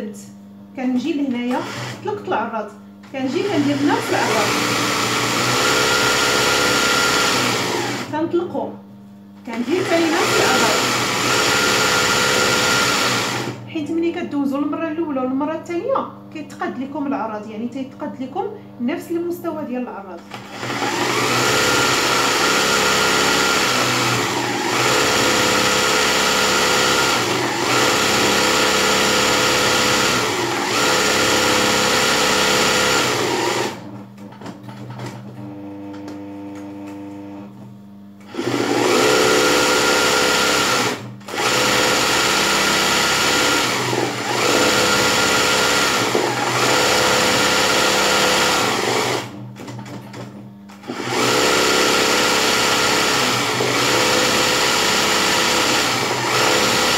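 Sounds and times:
sewing machine stitching: 0:01.5 - 0:02.1, 0:03.3 - 0:08.2, 0:09.5 - 0:13.6, 0:20.3 - 0:33.9, 0:38.2 - 0:56.9.

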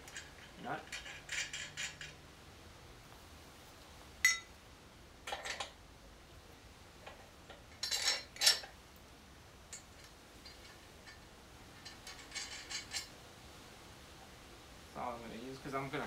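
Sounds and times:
metal parts clinking and clanking: 0:00.0 - 0:02.2, 0:04.2 - 0:04.5, 0:05.3 - 0:05.8, 0:07.0 - 0:08.8, 0:11.8 - 0:13.1.

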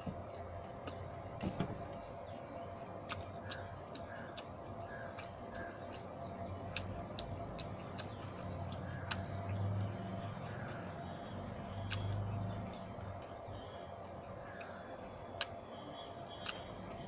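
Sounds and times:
faint steady hum: 0:00.0 - 0:17.0
mouth clicks: 0:03.0 - 0:06.1, 0:06.7 - 0:09.6, 0:11.7 - 0:13.3, 0:14.5 - 0:15.6, 0:16.3 - 0:17.0
chewing crunchy snack: 0:06.7 - 0:09.6, 0:11.8 - 0:12.2.

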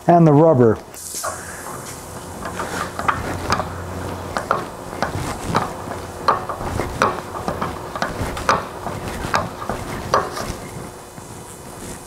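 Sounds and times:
hammer knocking on metal: 0:02.4 - 0:10.4.

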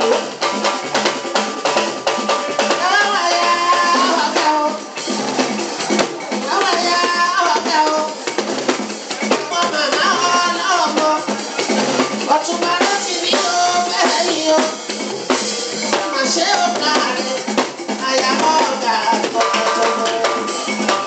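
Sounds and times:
drums and shakers percussion: 0:00.0 - 0:21.0
man singing into a microphone: 0:02.6 - 0:04.9, 0:06.4 - 0:08.2, 0:09.3 - 0:11.4, 0:12.2 - 0:14.8, 0:15.9 - 0:20.6.

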